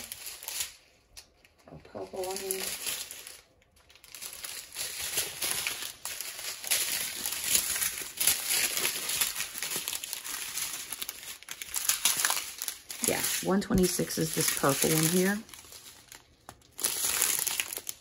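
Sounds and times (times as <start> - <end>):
plastic film crinkling: 0.0 - 18.0.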